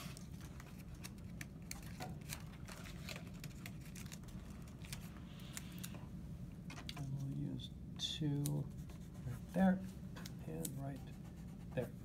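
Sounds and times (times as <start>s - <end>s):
paper and tape handled: 0.0s - 6.0s
steady low hum: 0.0s - 12.0s.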